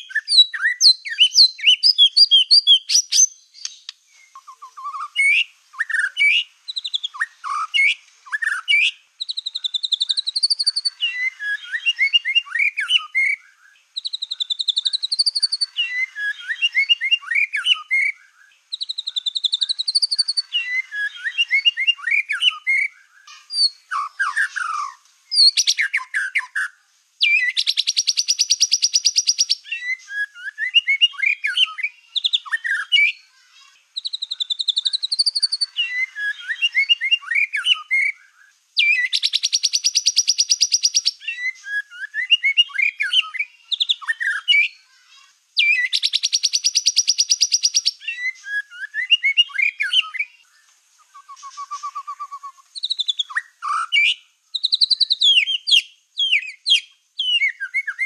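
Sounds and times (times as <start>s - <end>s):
songbird singing whistled trills: 0.0s - 58.0s.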